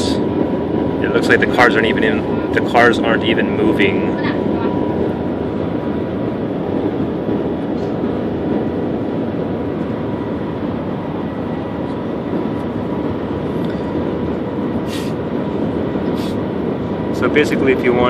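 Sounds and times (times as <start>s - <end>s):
train cabin rush: 0.0s - 18.0s.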